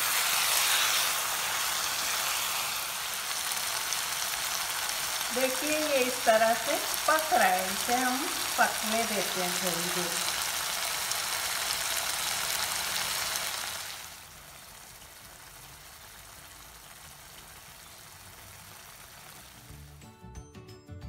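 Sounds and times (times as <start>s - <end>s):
chicken sizzling in hot oil: 0.0s - 20.0s
music: 19.5s - 21.0s.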